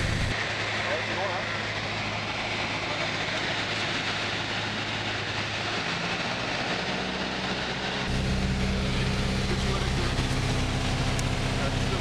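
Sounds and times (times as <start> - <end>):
airplane engine droning: 0.0 - 12.0.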